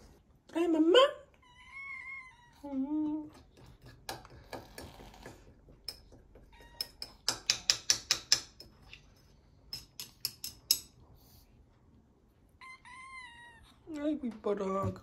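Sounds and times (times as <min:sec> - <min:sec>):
utensil clinking against a dish: 0:03.6 - 0:09.0, 0:09.6 - 0:11.0.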